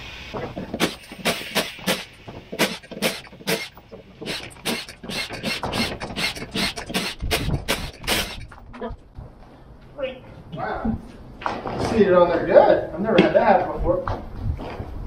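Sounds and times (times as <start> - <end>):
impact driver short bursts: 0.7 - 8.5.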